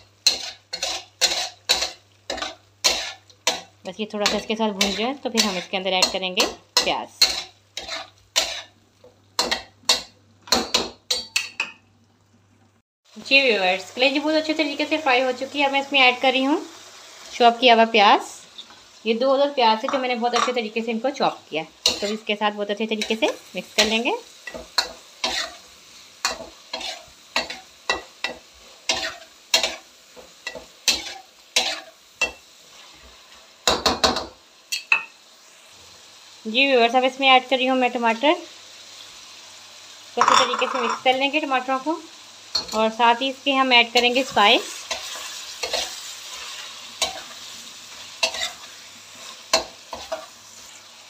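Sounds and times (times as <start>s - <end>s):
oil sizzling: 0.0s - 51.0s
spatula scraping metal wok: 0.2s - 8.8s, 21.8s - 33.1s, 43.9s - 50.9s.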